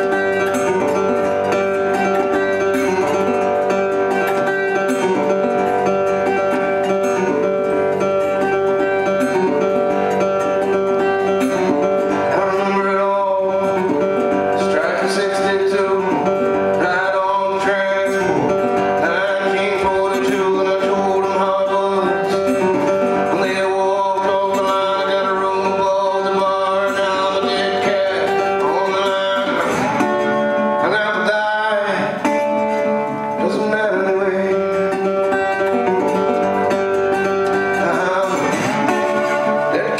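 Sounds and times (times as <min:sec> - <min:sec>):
acoustic guitar: 0:00.0 - 0:39.9
man singing: 0:08.3 - 0:39.9.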